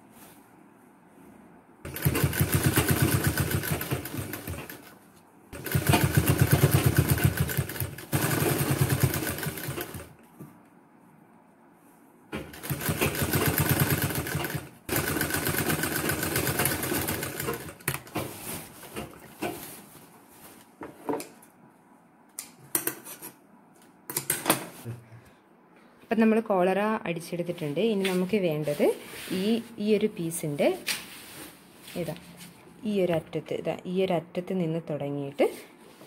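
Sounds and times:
sewing machine stitching: 1.9 - 4.9, 5.6 - 10.2, 12.4 - 19.2.

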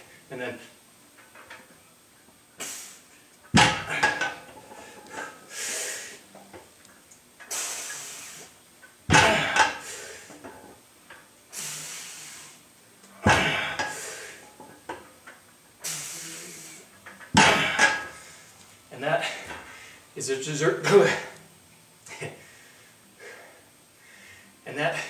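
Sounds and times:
weight plates clanking on floor: 3.6 - 5.4.

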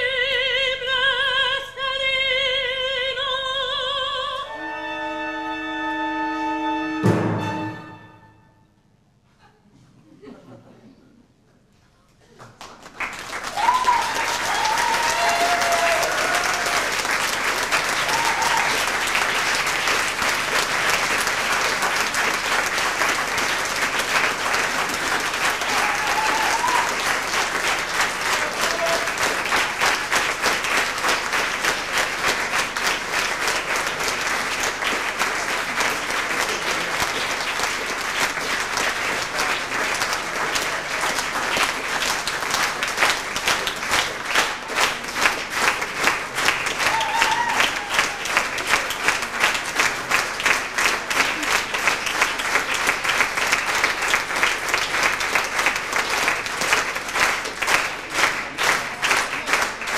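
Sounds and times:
audience applauding: 12.4 - 59.9
rhythmic clapping in unison: 12.5 - 59.9.

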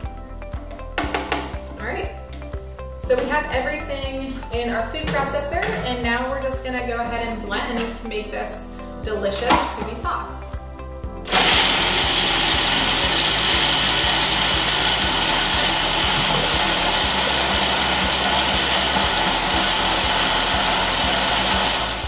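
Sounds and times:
food processor whirring: 11.3 - 22.0.

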